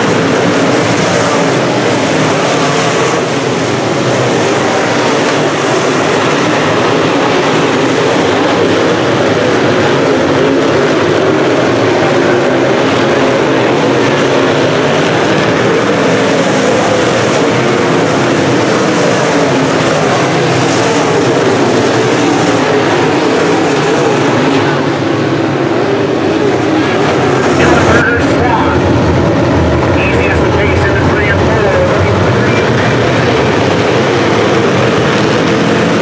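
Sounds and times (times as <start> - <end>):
race car engines droning: 0.0 - 36.0.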